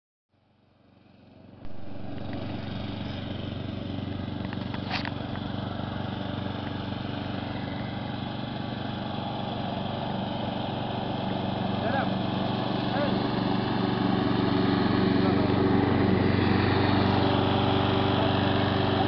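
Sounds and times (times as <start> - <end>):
lawn mower engine running: 0.6 - 19.0.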